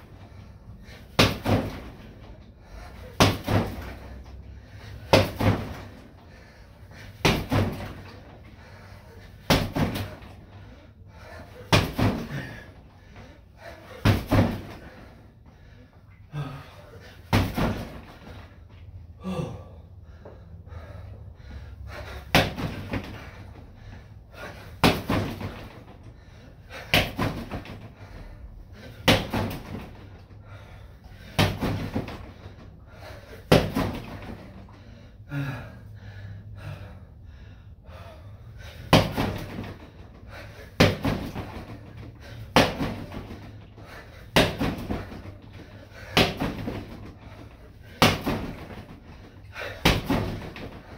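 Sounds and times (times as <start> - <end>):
kicks striking training dummy: 1.1 - 2.2, 3.1 - 4.0, 5.1 - 6.0, 7.2 - 8.3, 9.4 - 10.4, 11.6 - 12.5, 14.0 - 14.9, 17.3 - 18.2, 22.3 - 23.2, 24.8 - 25.9, 29.0 - 30.0, 31.3 - 32.3, 33.5 - 34.4, 38.9 - 39.8, 40.7 - 41.8, 42.5 - 43.4, 44.3 - 45.4, 46.2 - 47.2, 47.9 - 49.0, 49.6 - 50.9.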